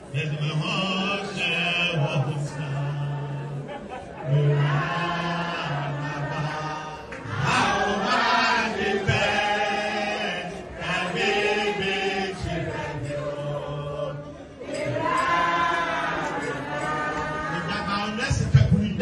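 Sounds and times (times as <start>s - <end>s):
man singing into a microphone: 0.0s - 8.1s
group of voices singing along: 0.0s - 18.5s.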